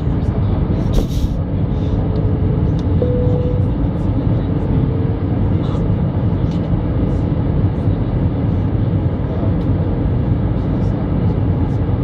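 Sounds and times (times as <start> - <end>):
airliner cabin engine drone: 0.0 - 12.0
faint steady hum: 1.8 - 4.9.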